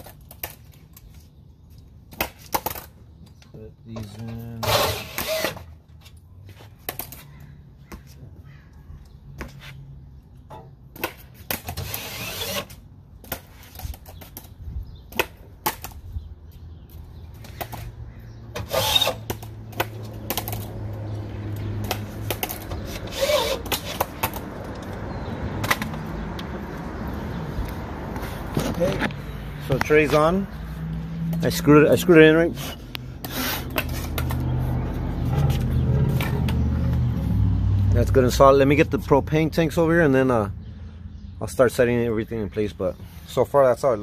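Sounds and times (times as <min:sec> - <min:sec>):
drill driving screws into metal: 0:04.6 - 0:05.7, 0:11.7 - 0:12.8, 0:18.6 - 0:19.2.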